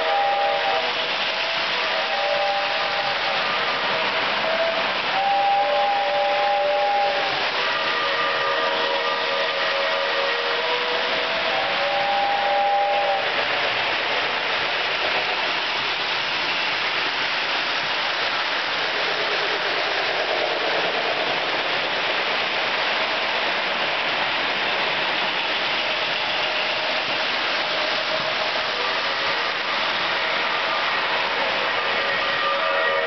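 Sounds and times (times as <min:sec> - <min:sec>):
model train whistle: 0:00.0 - 0:13.4, 0:26.4 - 0:33.0.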